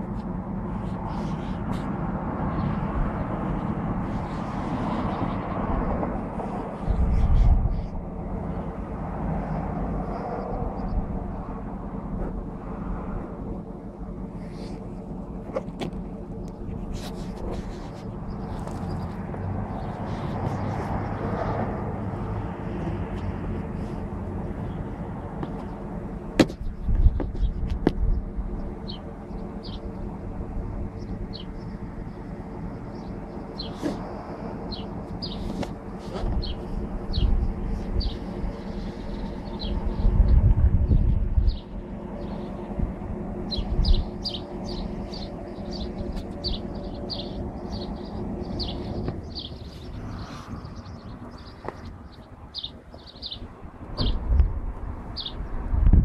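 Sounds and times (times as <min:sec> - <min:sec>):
vehicle cabin hum and hiss: 0:00.0 - 0:56.0
bird chirping: 0:36.4 - 0:42.6, 0:43.5 - 0:54.2, 0:55.1 - 0:55.5
low thumps: 0:53.9 - 0:54.8.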